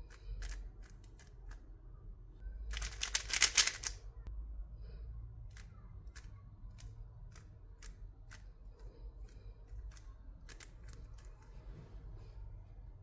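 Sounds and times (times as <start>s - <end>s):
puzzle cube turning clicks: 0.0s - 1.6s, 2.7s - 4.0s, 5.5s - 11.5s.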